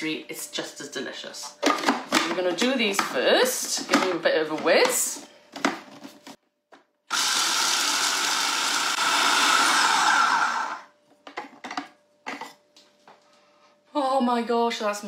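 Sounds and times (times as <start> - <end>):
food processor whirring: 7.1 - 11.0.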